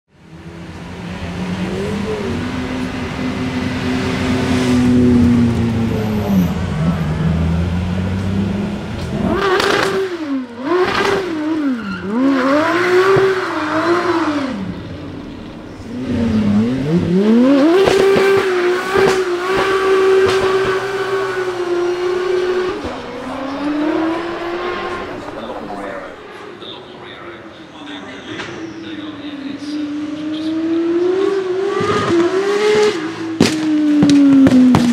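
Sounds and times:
car engine revving: 0.2s - 27.0s, 29.4s - 34.9s
tyre squeal: 11.0s - 12.7s.

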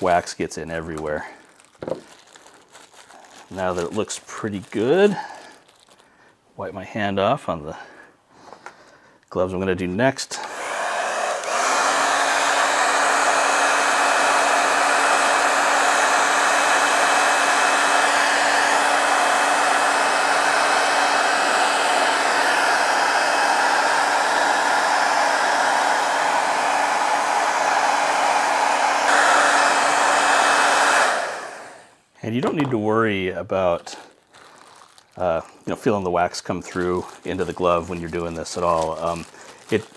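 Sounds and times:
hot-air blower running: 10.4s - 32.0s.

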